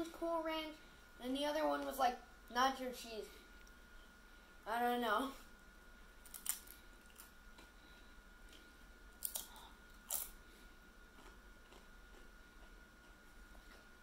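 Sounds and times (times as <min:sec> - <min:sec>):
chip crunching: 0:06.2 - 0:07.7, 0:08.5 - 0:10.4, 0:11.1 - 0:13.9
chewing: 0:11.1 - 0:14.0.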